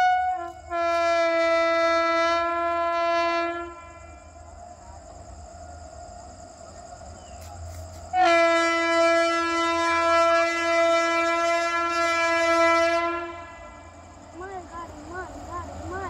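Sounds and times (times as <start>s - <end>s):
locomotive horn blast: 0.0s - 4.4s, 8.1s - 14.1s.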